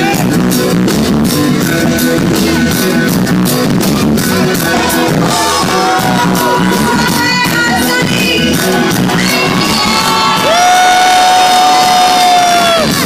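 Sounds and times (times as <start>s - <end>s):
live band music: 0.0s - 13.0s
crowd shouting and whooping: 4.5s - 13.0s.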